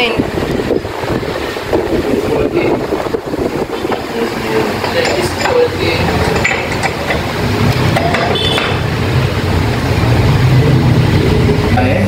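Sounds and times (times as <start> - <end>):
metallic clinks and taps: 4.7 - 8.8.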